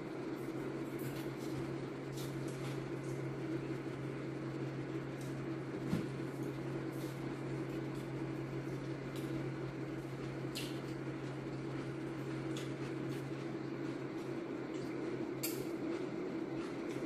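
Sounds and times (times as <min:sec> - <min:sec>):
appliance humming: 0:00.0 - 0:17.0
eating sounds: 0:10.0 - 0:17.0.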